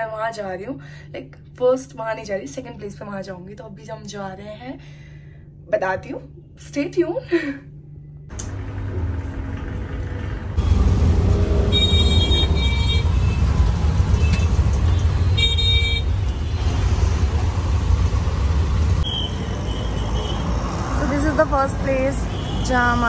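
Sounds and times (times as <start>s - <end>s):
rickshaw ride rumble: 8.4s - 19.8s
vehicle horns honking: 10.6s - 16.7s, 19.0s - 20.6s, 22.1s - 23.0s.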